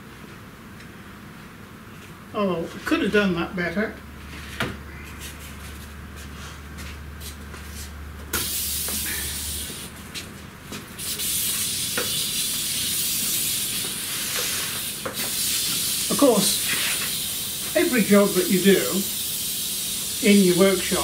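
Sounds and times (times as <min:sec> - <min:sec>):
air hissing: 0:08.3 - 0:10.0, 0:11.0 - 0:21.0.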